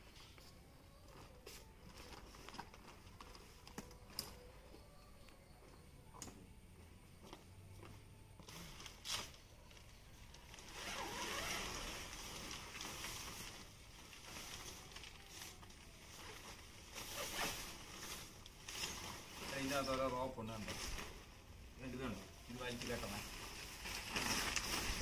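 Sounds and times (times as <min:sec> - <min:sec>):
tent fabric rustling: 0:10.2 - 0:25.0.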